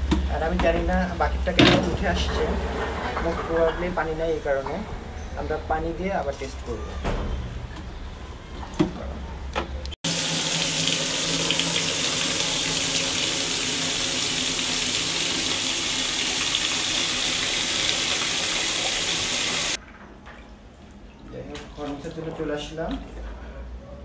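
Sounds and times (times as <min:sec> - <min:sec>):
tap water pouring into bucket: 0:10.1 - 0:20.4.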